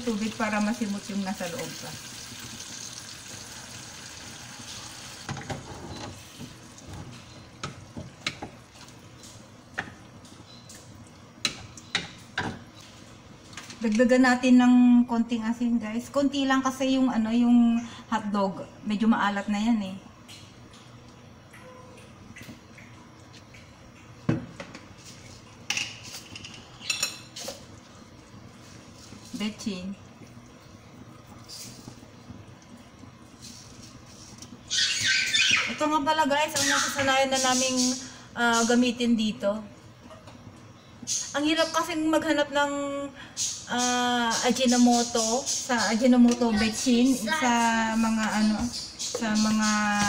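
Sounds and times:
water pouring into pan: 0:00.1 - 0:05.3.

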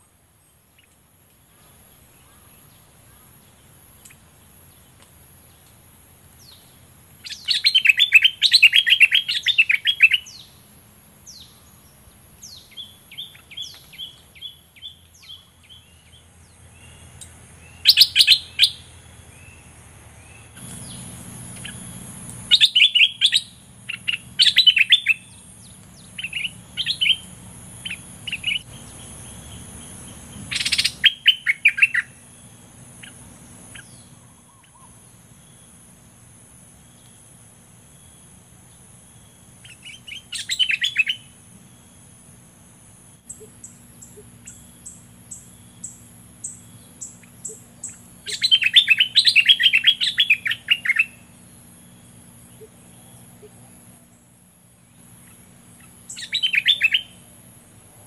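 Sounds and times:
bird chattering calls: 0:07.2 - 0:10.6, 0:20.3 - 0:32.2, 0:43.3 - 0:51.3, 0:55.1 - 0:57.2.

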